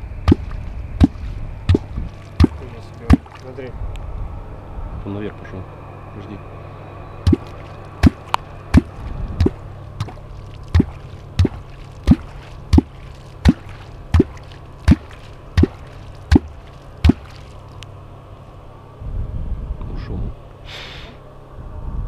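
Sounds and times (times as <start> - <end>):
deep watery plops with clicks: 0.2 - 3.5, 7.3 - 17.9.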